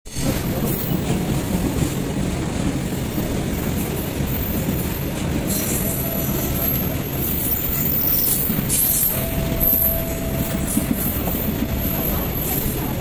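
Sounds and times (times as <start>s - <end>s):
freight train wheels rumbling: 0.1s - 13.0s.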